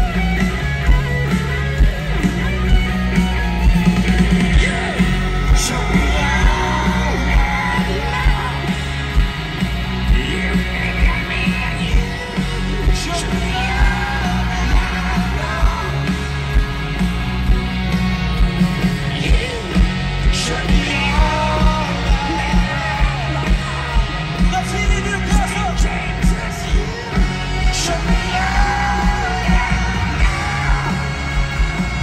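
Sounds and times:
live rock band playing: 0:00.0 - 0:32.0
man singing and yelling: 0:04.1 - 0:16.6, 0:19.0 - 0:32.0.

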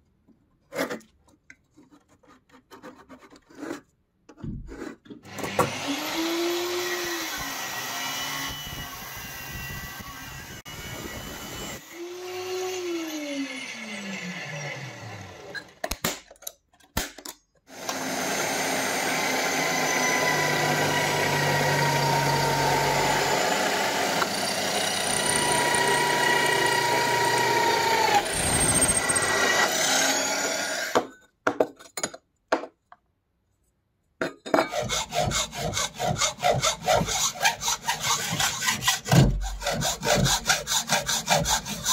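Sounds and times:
drill press drilling steel: 0:17.8 - 0:31.0.

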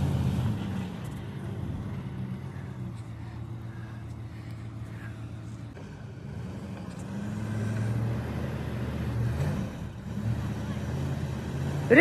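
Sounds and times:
pickup truck engine revving: 0:00.0 - 0:02.9, 0:05.8 - 0:12.0.

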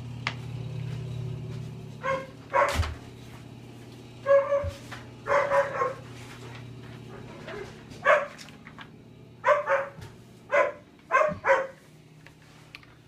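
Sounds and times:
dog barking: 0:02.0 - 0:02.9, 0:04.2 - 0:06.1, 0:07.2 - 0:08.4, 0:09.4 - 0:11.8.

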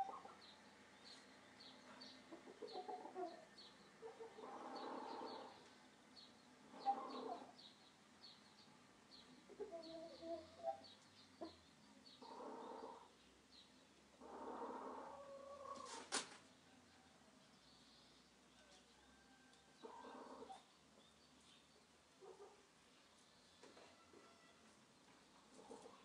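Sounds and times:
chickens clucking: 0:00.0 - 0:00.5, 0:01.6 - 0:05.7, 0:06.6 - 0:07.6, 0:09.3 - 0:13.1, 0:14.2 - 0:16.4, 0:19.8 - 0:20.7, 0:25.4 - 0:26.0
small bird chirping: 0:00.0 - 0:16.0.

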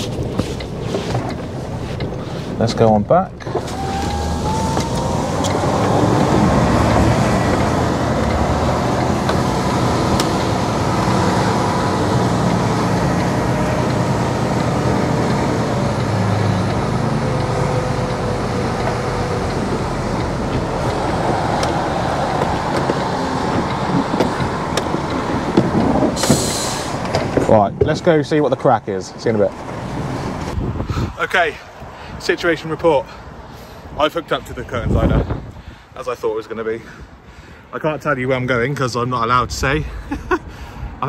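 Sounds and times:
diesel truck engine running: 0:00.0 - 0:27.5.

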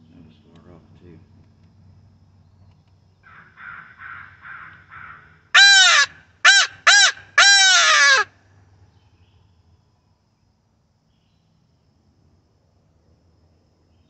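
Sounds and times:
electronic crow call caws: 0:03.2 - 0:08.4.

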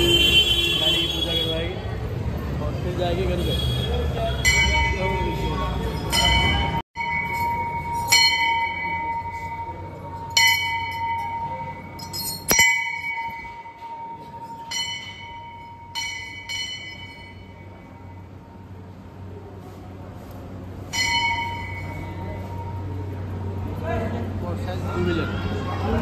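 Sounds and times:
metal temple bell ringing: 0:04.2 - 0:18.9, 0:20.8 - 0:24.4.

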